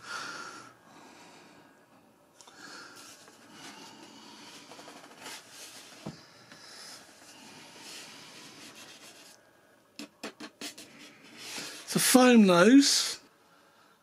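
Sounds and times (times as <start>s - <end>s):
foam model rubbing: 3.0s - 6.1s, 7.0s - 9.4s, 10.0s - 12.0s.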